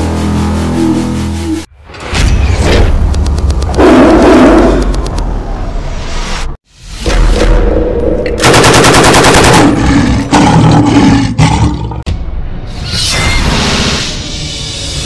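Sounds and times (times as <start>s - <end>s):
machine-gun fire: 8.4s - 9.9s.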